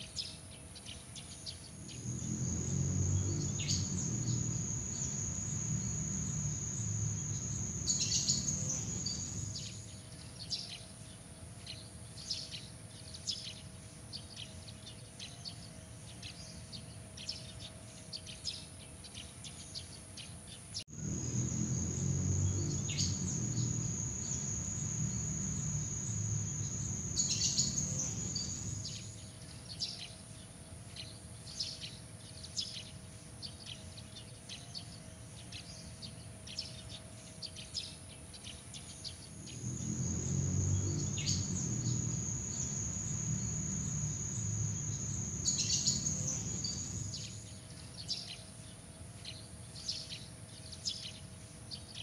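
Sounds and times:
high insect trill: 1.7 - 10.0, 20.9 - 29.3, 39.2 - 47.7
low rumble: 1.8 - 9.8, 20.9 - 29.1.

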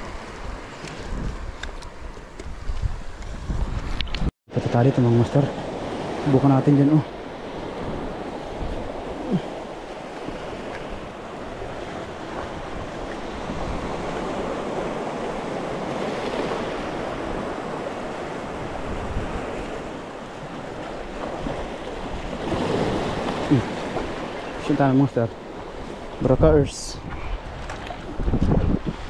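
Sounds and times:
wind buffeting microphone: 0.0 - 4.3, 7.3 - 24.7, 25.3 - 29.0
sea waves breaking over rocks: 4.9 - 26.8.

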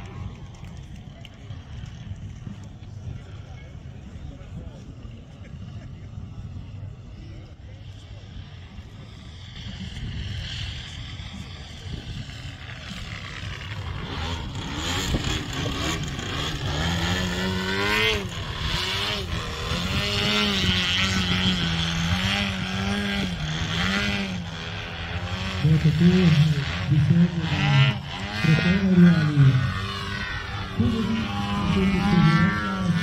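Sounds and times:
model plane engine and propeller: 0.0 - 33.0
sharp throttle blips: 12.0 - 33.0.

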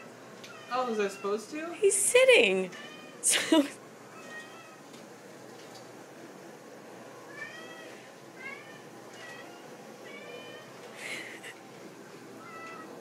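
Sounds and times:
cat meowing: 4.2 - 4.8, 7.3 - 10.7, 12.4 - 13.0.

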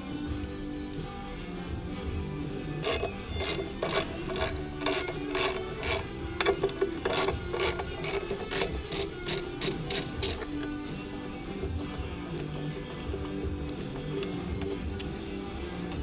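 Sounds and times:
hand tool metallic strokes: 2.8 - 11.0.

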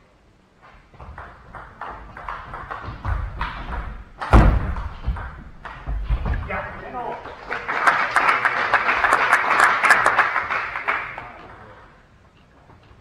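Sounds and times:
audience applauding: 1.0 - 5.9, 6.9 - 12.0.

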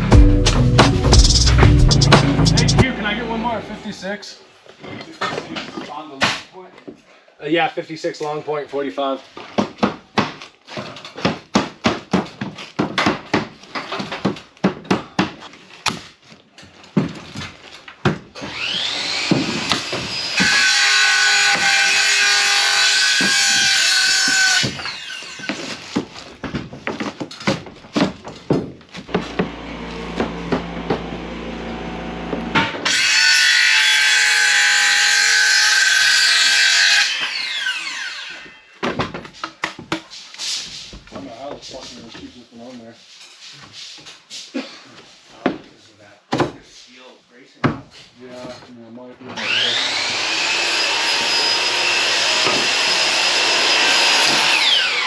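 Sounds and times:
circular saw cutting wood: 18.4 - 25.7, 29.1 - 38.7, 49.3 - 55.0.

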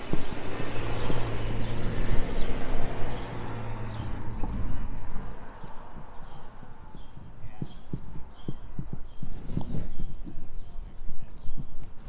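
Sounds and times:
car driving past: 0.1 - 6.4.

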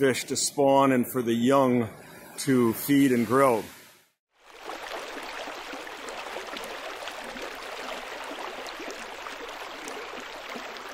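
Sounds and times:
running water splashing: 4.4 - 10.9.

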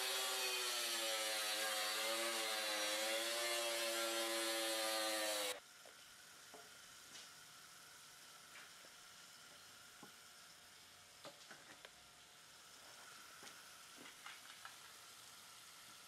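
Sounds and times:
power saw cutting stone: 0.0 - 5.6.

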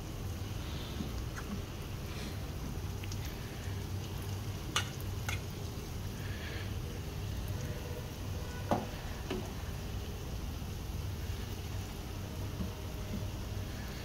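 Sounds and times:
batter deep-frying in oil: 0.0 - 14.0.

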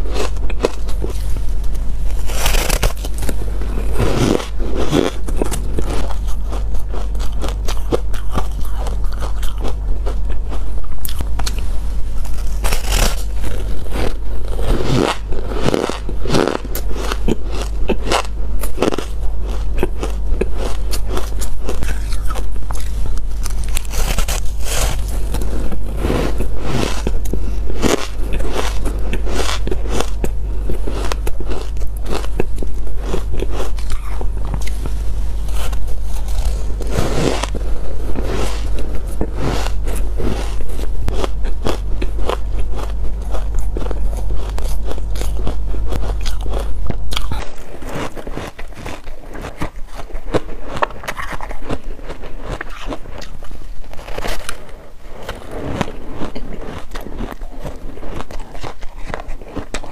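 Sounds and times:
low hum: 0.0 - 59.9
crunching ice bars: 12.2 - 34.8.

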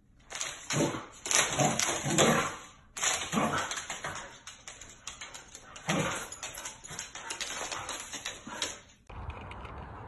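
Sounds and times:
claws clattering on hardwood floor: 0.2 - 9.0
dogs growling and barking: 0.7 - 4.3, 5.7 - 7.0.

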